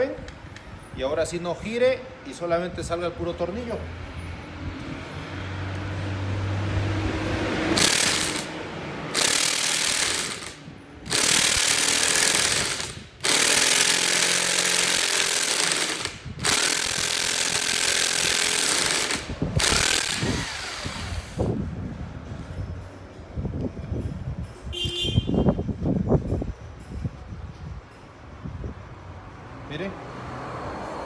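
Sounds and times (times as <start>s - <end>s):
impact wrench hammering: 7.7s - 21.4s.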